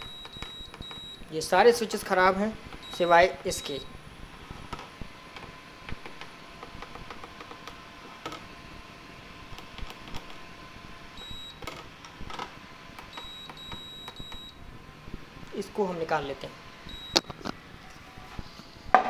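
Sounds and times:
short high beeps: 16.9 - 17.2.

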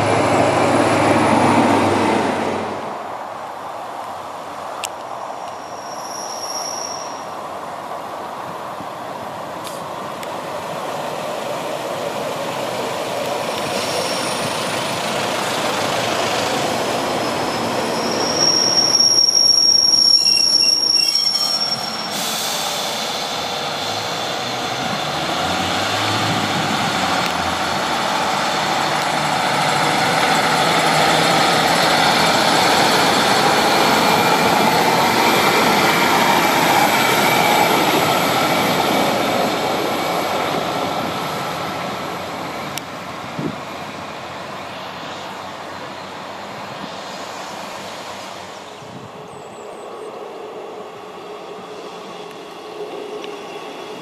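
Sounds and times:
diesel train pulling away: 0.0 - 3.4, 5.1 - 54.0
diesel railbus running on rails: 0.0 - 54.0
high-pitched wheel squeal: 5.5 - 7.4, 13.4 - 15.0, 16.6 - 25.2.

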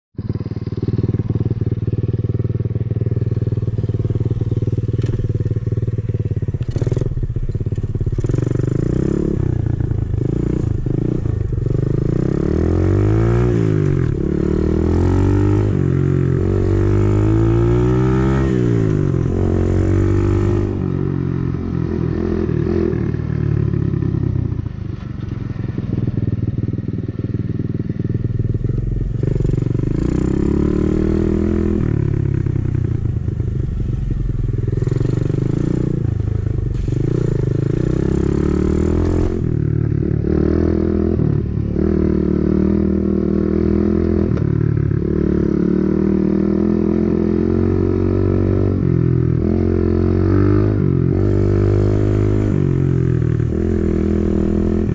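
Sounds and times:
dirt bike engine revving: 8.1 - 21.0, 29.2 - 32.2, 34.7 - 44.2, 49.4 - 54.9.

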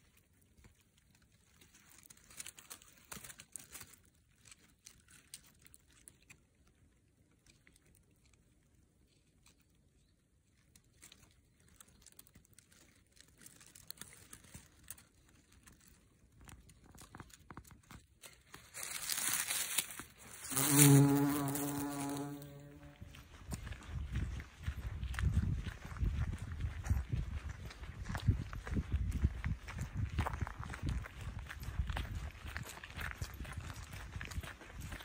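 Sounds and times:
dry leaves crackling and rustling: 0.0 - 6.8, 10.7 - 23.2.

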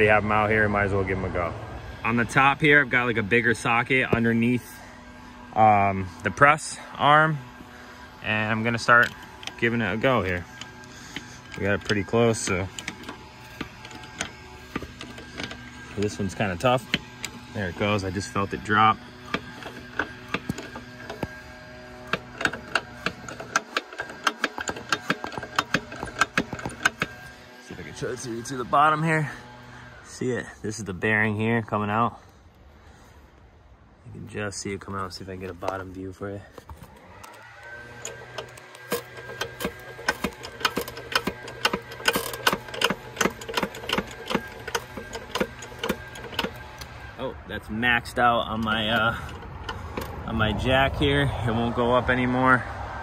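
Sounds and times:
sharp metallic clicks: 8.2 - 21.4, 22.0 - 27.4, 37.2 - 47.0.

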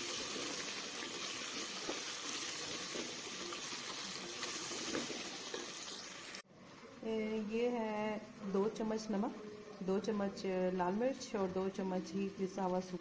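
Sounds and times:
meat sizzling in oil: 0.0 - 6.4.

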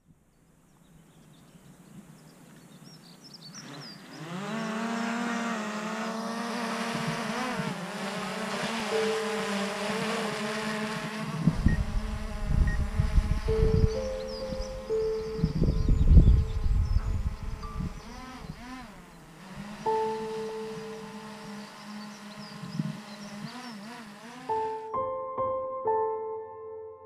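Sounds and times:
drone propellers buzzing whine: 3.4 - 25.0
gusty low rumble: 11.4 - 18.8.

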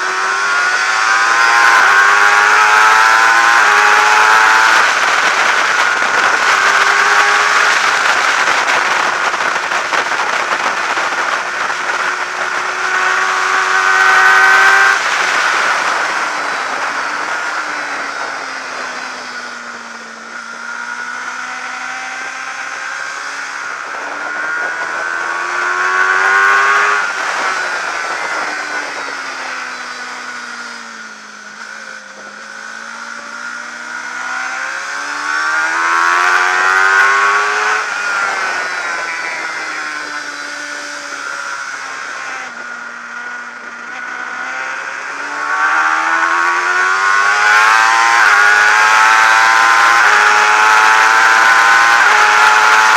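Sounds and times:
racing motorcycle engine: 0.0 - 52.9
wind rushing: 3.4 - 43.8.

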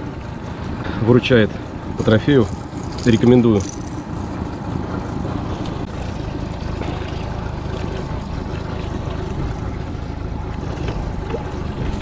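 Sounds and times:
outboard motor running: 0.0 - 12.0
water rushing along hull: 0.0 - 12.0.

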